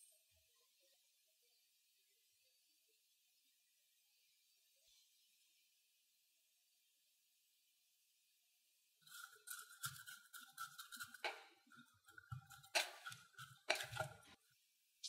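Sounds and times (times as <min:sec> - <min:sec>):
plastic paddle scraping glass bowl: 0:09.0 - 0:14.4.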